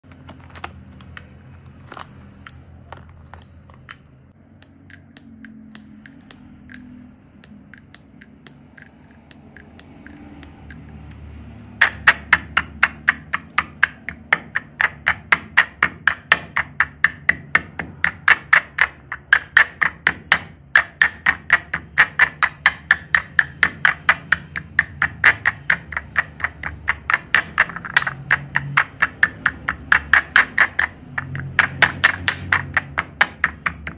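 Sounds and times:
chalk sticks clicking: 0:00.1 - 0:33.9
pestle pounding in mortar: 0:07.4 - 0:33.9.

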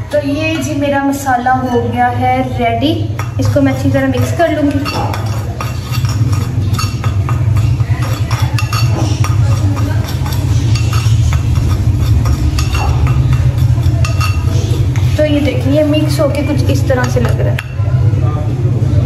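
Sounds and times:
low hum: 0:01.2 - 0:19.0
metal spoon clinking on clay bowl: 0:03.0 - 0:17.9.

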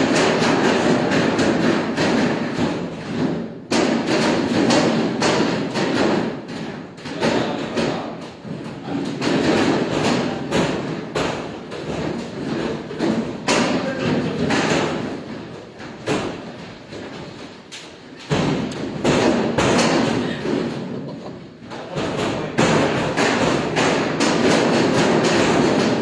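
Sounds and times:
dough slapping on steel table: 0:21.8 - 0:26.0.

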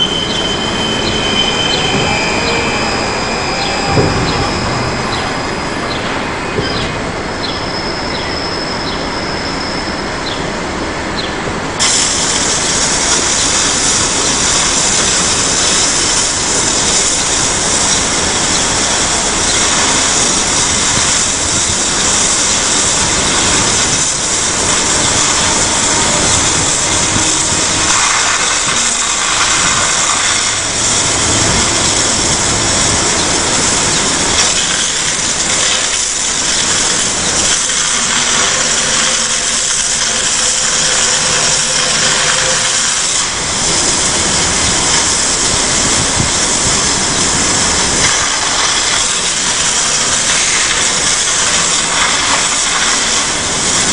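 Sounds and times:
mechanical din: 0:00.0 - 0:07.6
hose jet spraying on steel: 0:00.0 - 0:08.0, 0:11.8 - 0:53.9.

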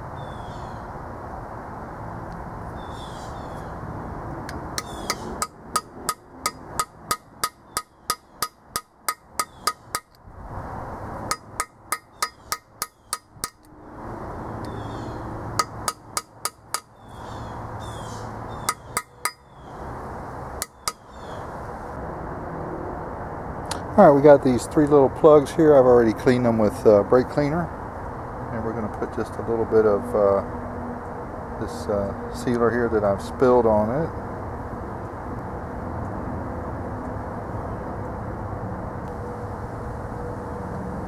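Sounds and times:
hammer ringing on steel: 0:04.8 - 0:10.2, 0:11.3 - 0:13.7, 0:15.6 - 0:16.9, 0:18.7 - 0:19.5.

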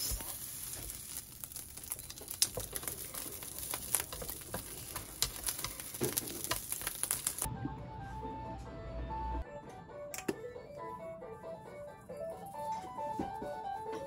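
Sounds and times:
packaging crinkling and rustling: 0:00.0 - 0:07.5.

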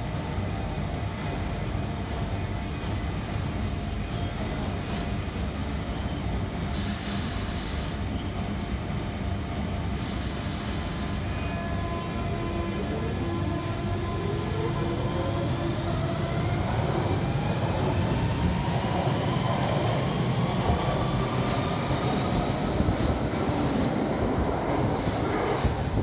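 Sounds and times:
train equipment rumble and hum: 0:00.0 - 0:26.0
high hiss of air: 0:06.7 - 0:08.1, 0:10.0 - 0:11.3.

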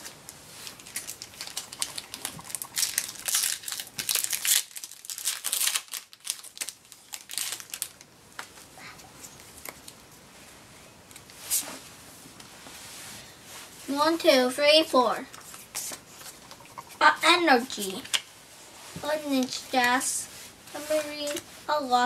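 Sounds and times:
foil wrapper crinkling and tearing: 0:00.0 - 0:08.1.

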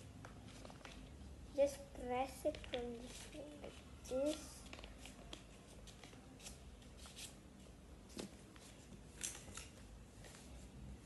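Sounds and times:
paper rustling and crackling: 0:00.2 - 0:01.2, 0:02.4 - 0:07.4.

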